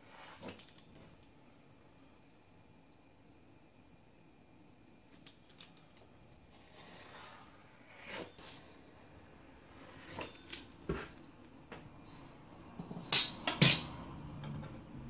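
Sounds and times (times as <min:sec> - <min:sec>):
blade scraping on work surface: 0:06.6 - 0:08.7.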